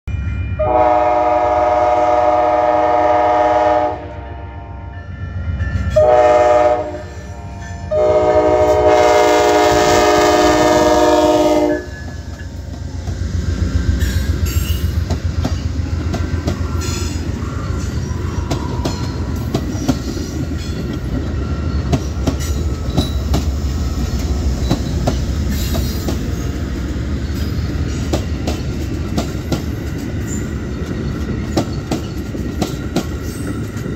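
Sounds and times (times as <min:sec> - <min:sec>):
train rumble: 0:00.1 - 0:33.9
train horn blasts: 0:00.6 - 0:05.0, 0:05.9 - 0:12.1
wheels clicking over rail joints: 0:14.0 - 0:33.9.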